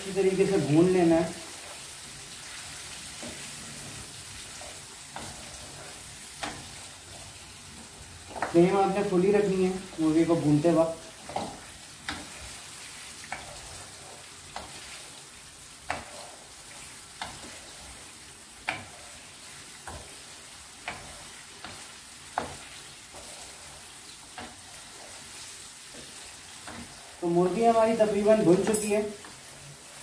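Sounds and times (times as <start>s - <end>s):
chicken sizzling in hot oil: 0.0s - 30.0s
spoon scraping a pan: 1.5s - 7.5s, 11.2s - 27.2s.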